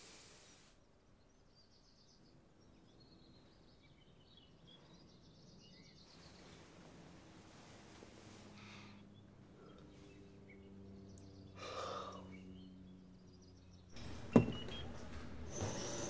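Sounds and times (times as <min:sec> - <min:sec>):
low steady hum: 0:03.1 - 0:16.0
treadmill motor whining: 0:12.6 - 0:16.0.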